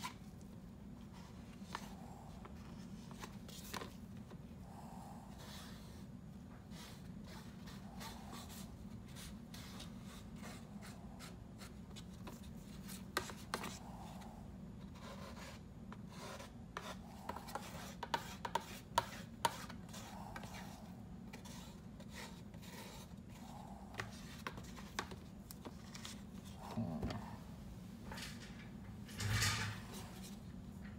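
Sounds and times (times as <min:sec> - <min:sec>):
steady low hum: 0:00.0 - 0:30.9
spatula scraping epoxy paste: 0:15.3 - 0:20.8.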